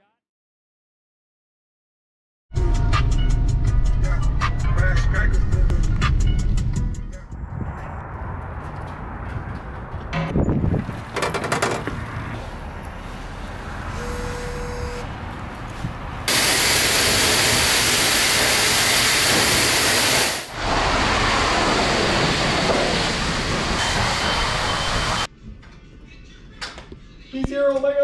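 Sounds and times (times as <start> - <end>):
loud steady hiss: 16.3 - 25.2.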